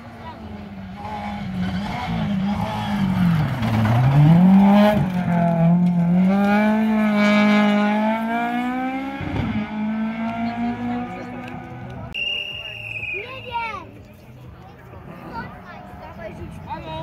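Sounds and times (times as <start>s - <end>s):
rally car engine at high revs: 0.0s - 12.1s.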